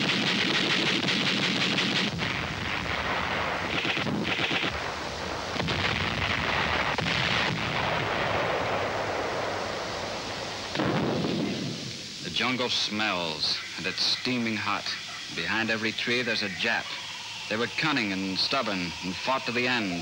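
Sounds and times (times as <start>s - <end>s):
gunfire: 0.0s - 11.8s
artillery explosions: 0.0s - 12.7s.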